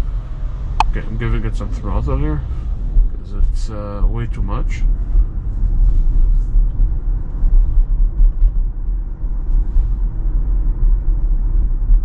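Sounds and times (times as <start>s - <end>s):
tyre and road noise in car: 0.0s - 12.0s.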